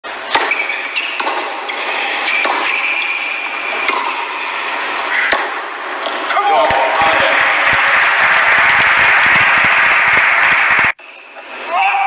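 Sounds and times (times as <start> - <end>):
tennis ball struck by racket: 0.3 - 1.6, 2.2 - 2.8, 3.7 - 4.3, 4.9 - 6.2
shoes squeaking on court: 0.3 - 5.4.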